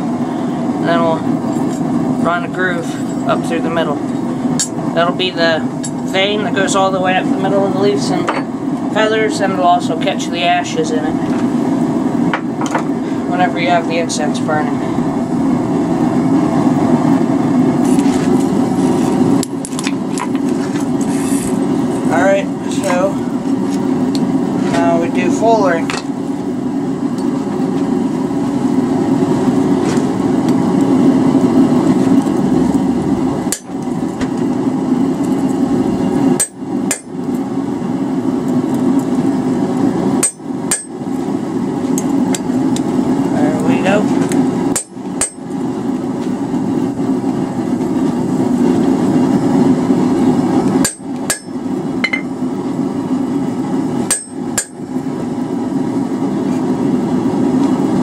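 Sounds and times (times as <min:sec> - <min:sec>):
hammer striking tool on anvil: 0:33.5 - 0:33.7, 0:36.4 - 0:37.1, 0:40.2 - 0:41.0, 0:44.7 - 0:45.4, 0:50.8 - 0:52.3, 0:54.1 - 0:54.8.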